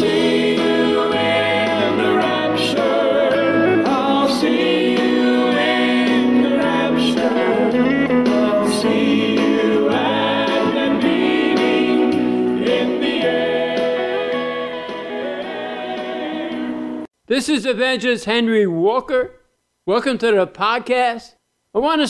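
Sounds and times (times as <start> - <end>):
choir singing intro music: 0.0 - 17.1.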